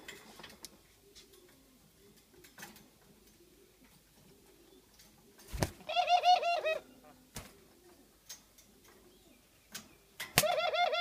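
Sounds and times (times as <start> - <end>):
doves cooing: 0.0 - 9.5, 10.2 - 11.0.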